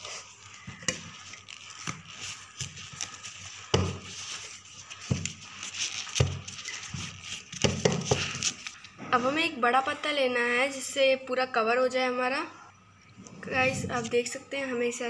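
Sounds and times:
leaves rustling and crinkling: 0:00.0 - 0:08.9.

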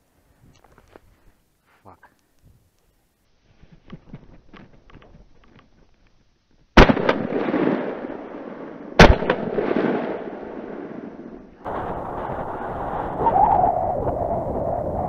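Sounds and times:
shotgun shots with echo: 0:06.8 - 0:11.1
steady rushing noise: 0:11.6 - 0:15.0.

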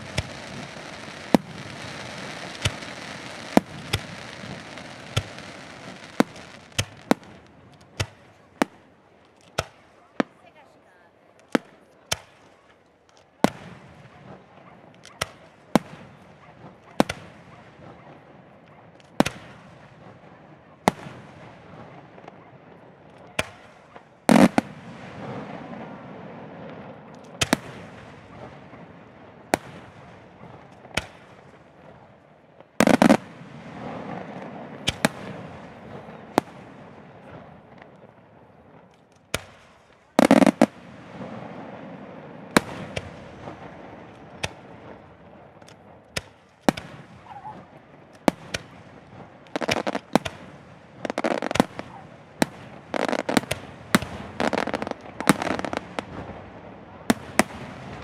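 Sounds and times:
firework shells bursting: 0:00.0 - 0:08.2, 0:49.5 - 0:56.4
heavy firework booms: 0:00.0 - 0:08.2, 0:40.2 - 0:45.3.

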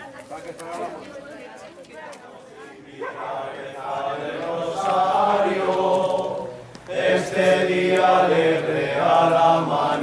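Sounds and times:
group singing a hymn: 0:02.7 - 0:10.0.

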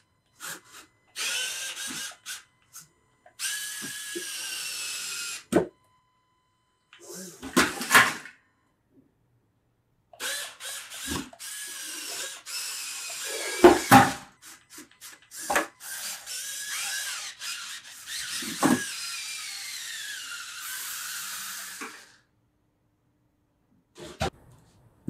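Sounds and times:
electric motors whining through gears: 0:00.0 - 0:05.5, 0:10.2 - 0:22.3.

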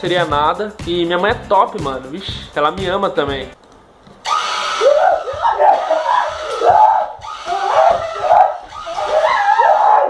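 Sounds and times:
high-pitched yelling and screaming: 0:04.2 - 0:10.0.

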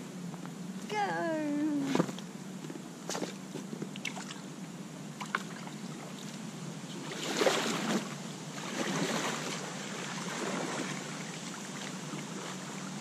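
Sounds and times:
paddles splashing in water: 0:07.0 - 0:13.0.

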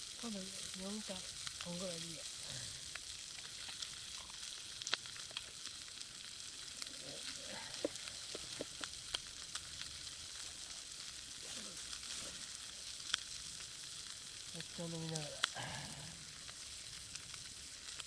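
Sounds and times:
food sizzling in a frying pan: 0:00.0 - 0:18.0
sharp pops: 0:07.6 - 0:09.8.

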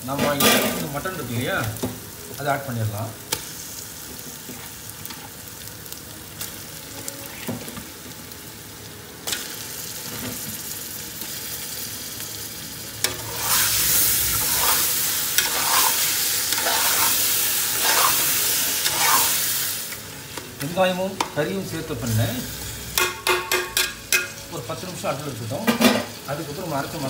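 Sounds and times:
meat sizzling in a pot: 0:00.0 - 0:27.0
spatula scraping metal pot: 0:13.0 - 0:19.4.

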